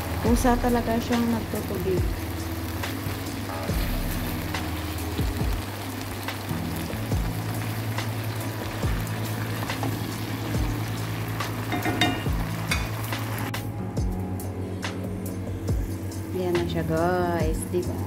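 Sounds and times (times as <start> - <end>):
chicken livers sizzling in a pan: 0.0 - 13.6.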